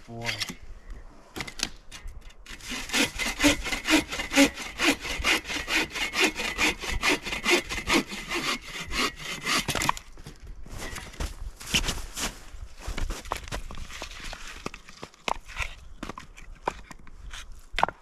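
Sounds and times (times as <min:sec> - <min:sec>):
hand saw cutting wood: 0:02.4 - 0:10.0.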